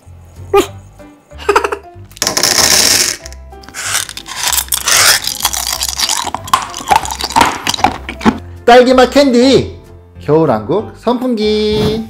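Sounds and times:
candies pouring into plastic case: 2.2 - 8.3
crunching hard candy: 2.2 - 8.4.

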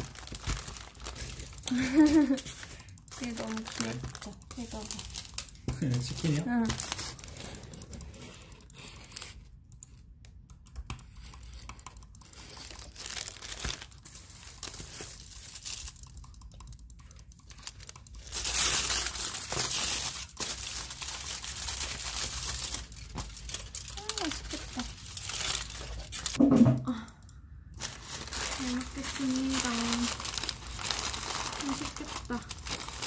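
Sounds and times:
foil and paper wrappers crinkling: 0.0 - 7.6, 12.3 - 16.0, 17.5 - 26.4, 27.8 - 33.0.

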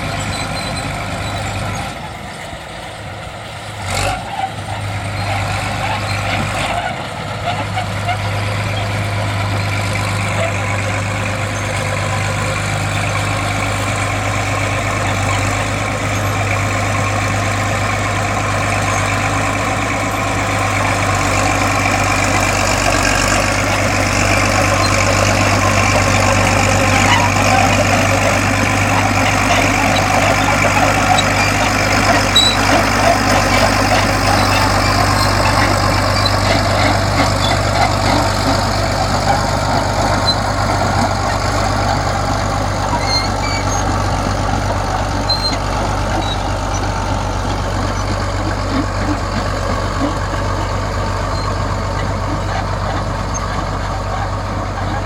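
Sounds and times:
bulldozer diesel engine droning: 0.0 - 55.0
steel tracks clanking: 4.0 - 55.0.

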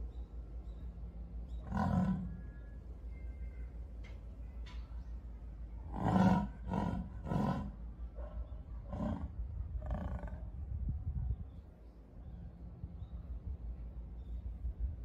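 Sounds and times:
jaguar hoarse grunts: 1.6 - 2.5, 5.9 - 7.8, 8.9 - 10.4.

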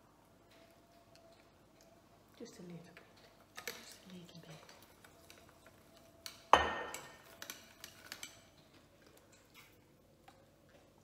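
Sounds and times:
glass bottle set down clinking: 6.6 - 7.2.

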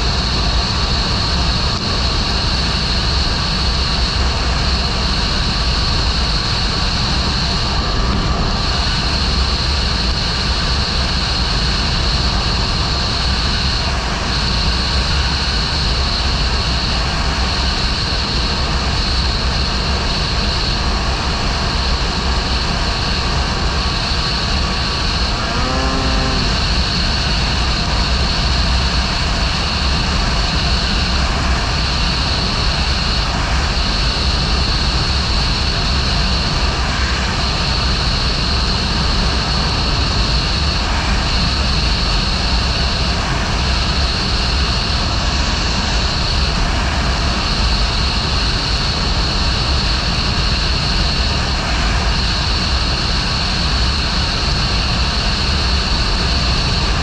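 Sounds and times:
snowmobile engine droning: 21.1 - 30.2
brief pitched tone: 25.3 - 26.7.

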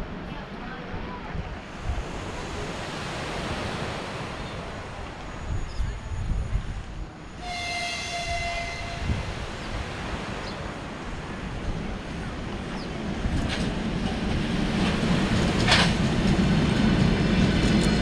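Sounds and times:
approaching train running: 0.0 - 18.0
locomotive horn blast: 7.4 - 9.3.

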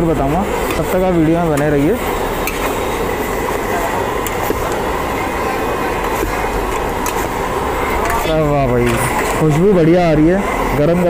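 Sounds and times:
crowd chatter: 0.0 - 11.0
street traffic rumble: 0.0 - 11.0.

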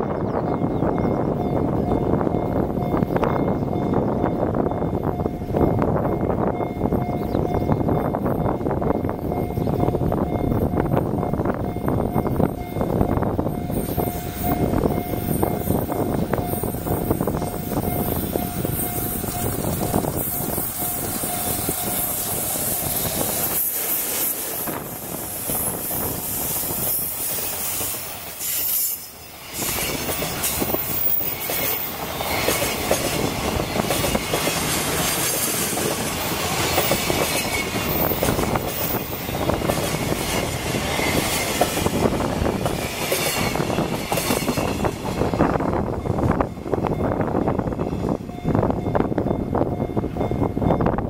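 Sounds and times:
wind buffeting microphone: 0.0 - 51.0
wheels clicking over rail joints: 6.6 - 46.6
high wheel squeal: 9.0 - 33.3.

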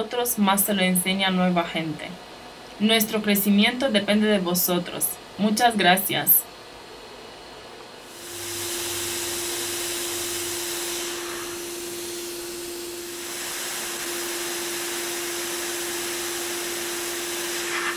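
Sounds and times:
hot air station blowing: 8.0 - 17.9.

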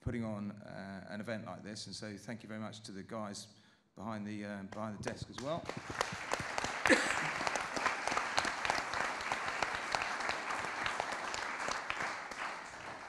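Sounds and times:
audience applauding: 5.4 - 13.0.

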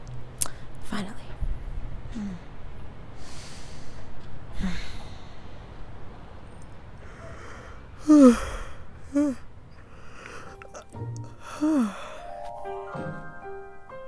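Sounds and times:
person sighing: 2.1 - 2.5, 4.6 - 5.2, 7.1 - 12.4
person breathing out: 7.0 - 12.4.

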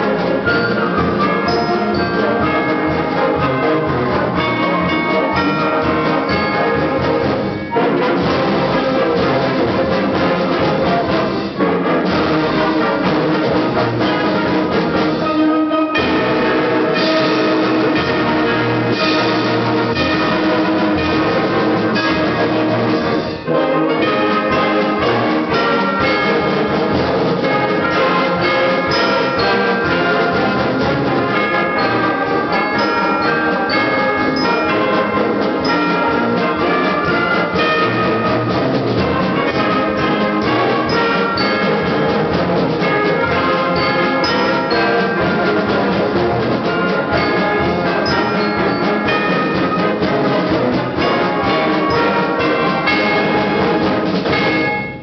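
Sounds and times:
concert band playing a march: 0.0 - 55.0.

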